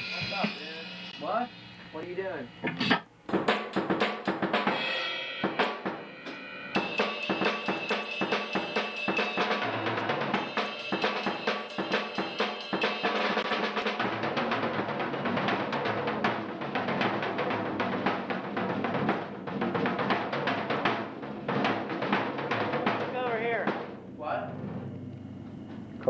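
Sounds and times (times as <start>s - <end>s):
crashing cymbals: 0.0s - 2.5s, 4.6s - 14.1s
drum kit played fast: 0.0s - 24.7s.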